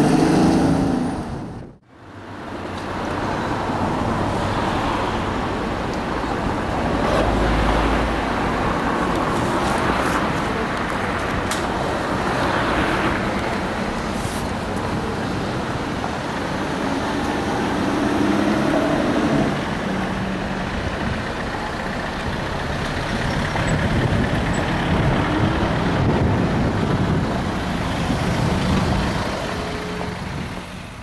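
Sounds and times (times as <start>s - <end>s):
car engine revving: 15.4s - 20.4s.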